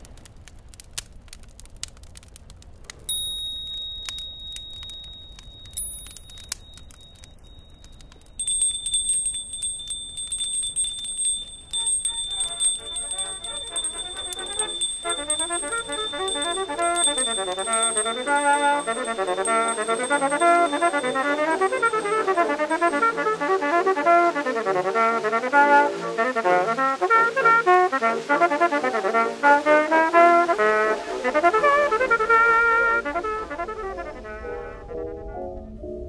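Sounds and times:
faint clicking: 0.0s - 23.3s
high ringing tone pulsing: 3.1s - 23.4s.

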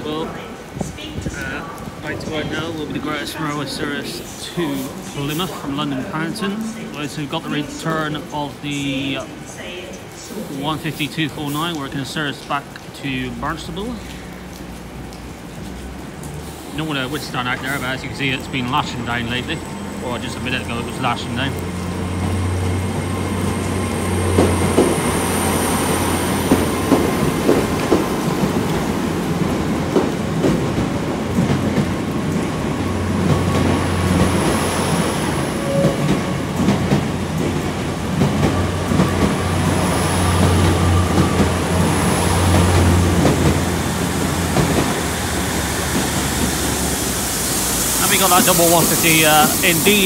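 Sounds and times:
train engine drone: 16.0s - 50.0s.

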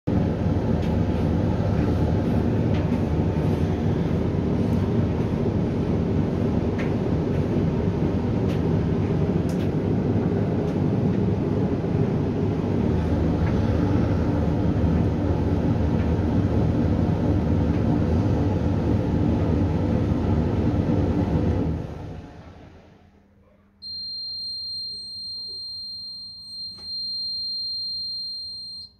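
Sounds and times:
tumble dryer rumble: 0.1s - 23.2s.

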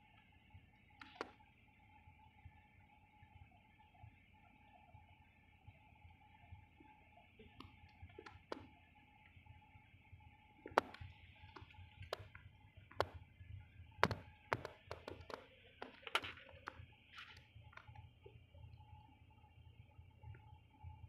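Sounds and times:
faint steady hum: 0.0s - 21.0s
sharp clicks and taps: 10.7s - 13.2s, 14.0s - 16.8s.

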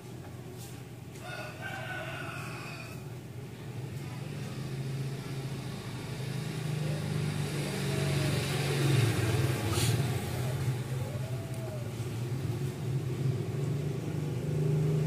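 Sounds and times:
vehicle engine humming: 3.1s - 15.0s.

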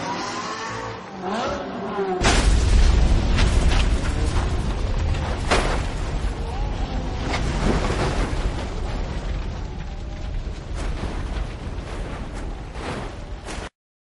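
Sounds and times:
sharp cracks: 2.2s - 11.8s
race car fire rumbling: 2.2s - 13.7s.

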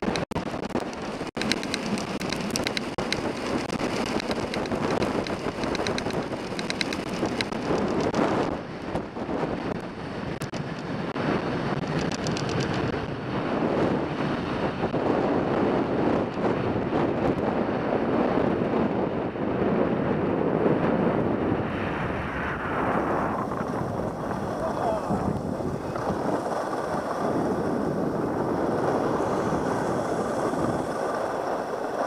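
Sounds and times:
wind buffeting microphone: 0.0s - 32.0s
skis hissing on snow: 24.3s - 28.0s, 28.6s - 32.0s.

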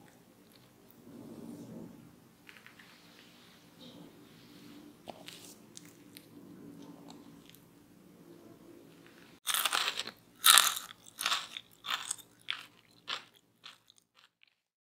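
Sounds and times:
crunchy chewing: 9.4s - 14.7s.

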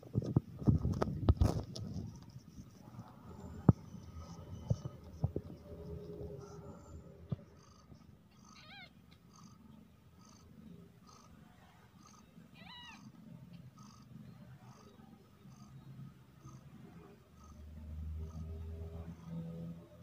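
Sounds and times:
cat purring: 0.6s - 20.0s
kitten mewing: 8.3s - 9.0s.

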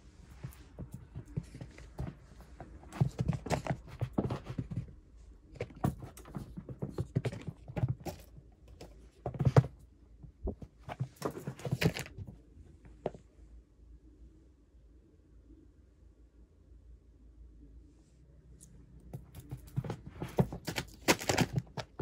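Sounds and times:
cat thumping and pawing: 0.4s - 12.3s, 19.1s - 22.0s.

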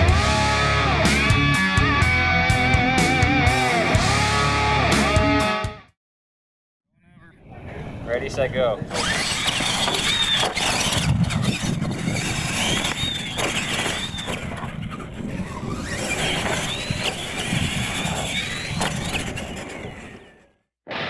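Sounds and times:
tyres rumbling on dirt: 8.8s - 20.5s
electric motors whining: 8.9s - 20.5s.

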